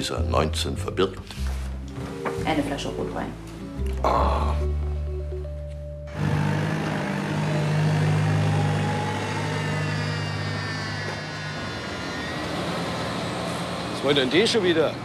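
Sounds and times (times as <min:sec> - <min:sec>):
engine humming: 0:05.1 - 0:15.0
high sliding whines: 0:06.1 - 0:15.0.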